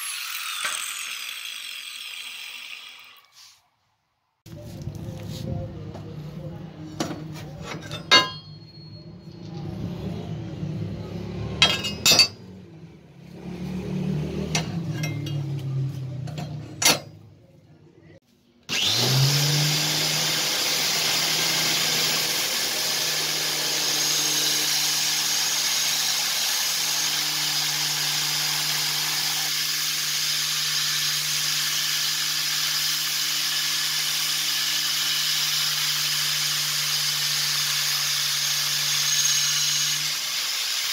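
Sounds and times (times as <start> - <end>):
saw blade clanking: 0.0 - 3.3, 7.0 - 9.5, 11.6 - 12.5, 14.4 - 17.2
belt grinder grinding steel: 0.0 - 3.4, 18.7 - 40.9.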